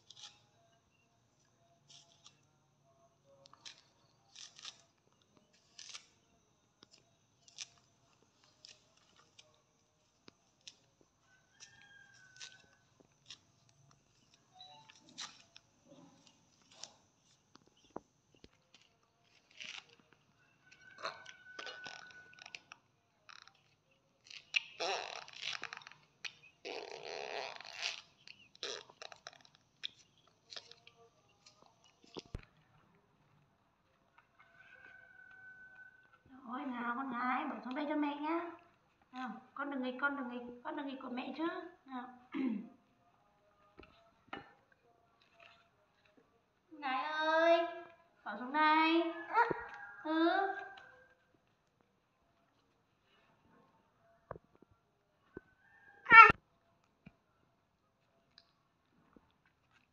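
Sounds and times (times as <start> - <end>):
fruit pith tearing: 0.0 - 1.0, 3.4 - 32.5
coconut husk snapping and scraping: 3.4 - 9.6, 11.5 - 32.5
small crackles and clicks: 3.4 - 33.0, 43.6 - 46.3, 57.9 - 59.9.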